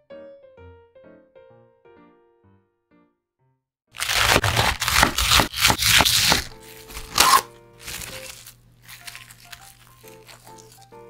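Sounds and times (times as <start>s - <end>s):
cling film rustling: 4.0s - 11.0s
knife cutting cabbage on board: 4.0s - 11.0s
soft background music: 6.1s - 11.0s.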